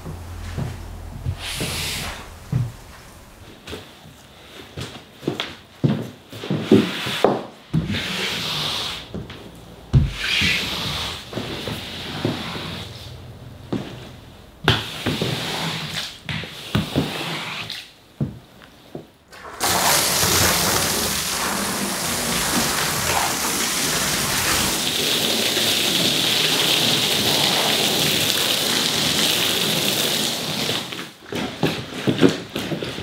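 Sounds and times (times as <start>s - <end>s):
water spraying from hose: 0.0s - 3.7s, 19.3s - 31.1s.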